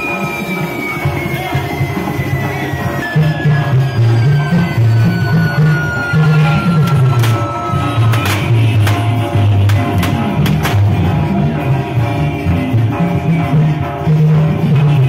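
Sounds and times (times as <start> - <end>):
latin american band music: 0.0 - 15.0
fireworks popping: 6.9 - 11.0.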